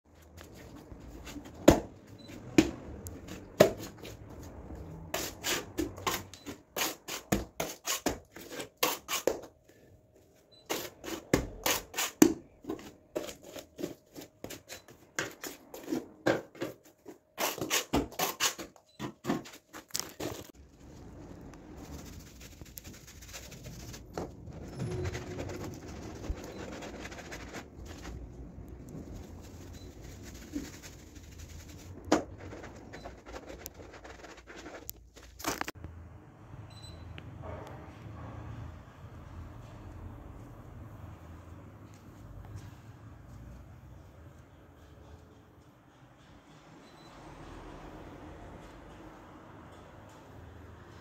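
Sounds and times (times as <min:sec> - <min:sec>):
hand tool slapping wet plaster: 0:17.4 - 0:19.5.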